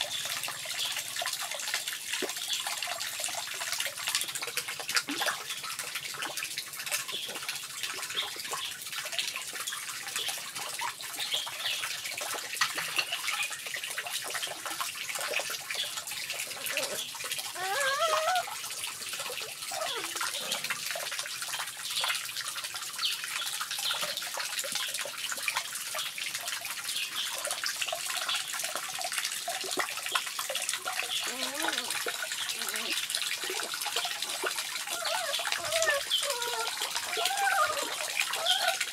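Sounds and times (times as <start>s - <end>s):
water pouring into pond: 0.0s - 38.9s
puppy whining: 16.4s - 18.6s, 19.3s - 20.8s, 31.2s - 38.9s.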